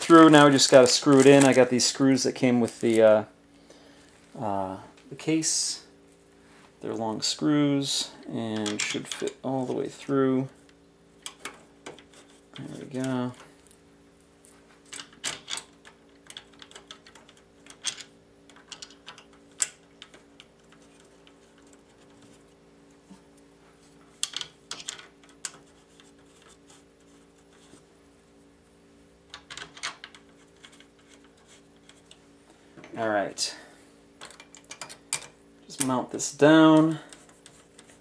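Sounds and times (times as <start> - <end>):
faint steady hum: 0.0 - 38.0
screws and fan clicking on metal case: 14.9 - 22.4, 24.2 - 26.8.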